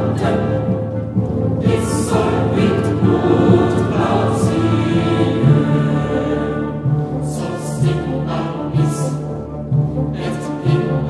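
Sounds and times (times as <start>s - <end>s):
choral singing with orchestra: 0.0s - 11.0s.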